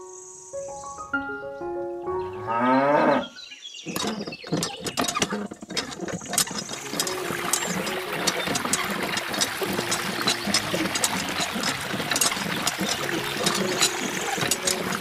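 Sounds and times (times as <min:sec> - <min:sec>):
background music: 0:00.0 - 0:03.2, 0:06.6 - 0:15.0
cow mooing: 0:02.4 - 0:03.4
hand pump lever clicking and rattling: 0:03.8 - 0:15.0
water pouring from spout: 0:03.9 - 0:15.0.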